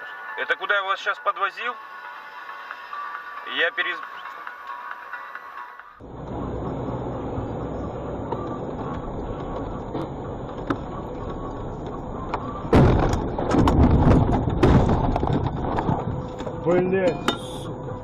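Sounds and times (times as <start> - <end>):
road and engine noise: 0.0 - 18.0
vehicle crash bangs and rattles: 8.1 - 17.8.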